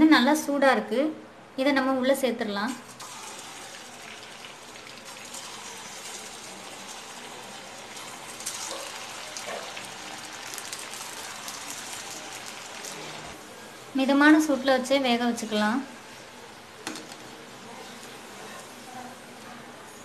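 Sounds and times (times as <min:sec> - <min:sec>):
crackles of frying oil: 0:02.6 - 0:20.0
oil sizzling while deep-frying: 0:02.7 - 0:13.4, 0:14.1 - 0:19.0.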